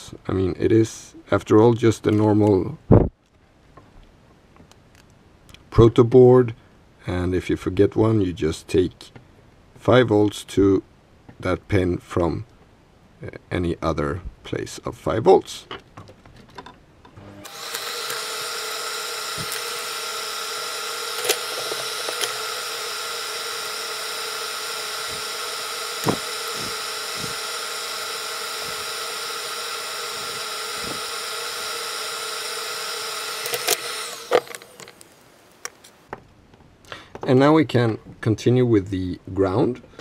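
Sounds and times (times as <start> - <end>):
small electric motor whining: 17.2 - 35.6
sharp clicks: 33.2 - 35.9.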